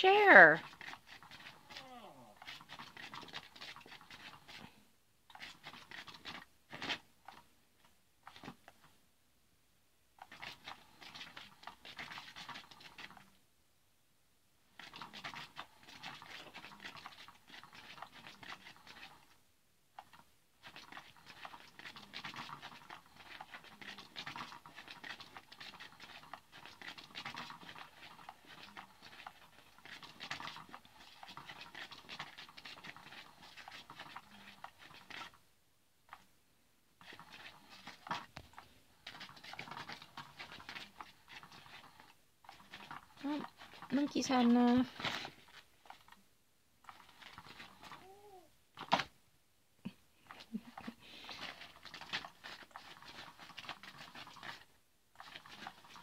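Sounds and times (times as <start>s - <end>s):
toy motor whirring: 0.0s - 4.6s, 14.8s - 19.3s, 20.0s - 35.4s, 39.0s - 45.2s
wand rustling against nylon: 37.0s - 46.2s.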